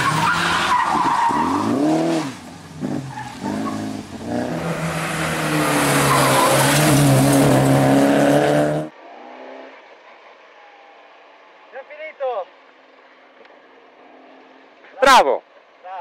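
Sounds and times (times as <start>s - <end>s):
rally car engine revving hard: 0.0s - 9.7s.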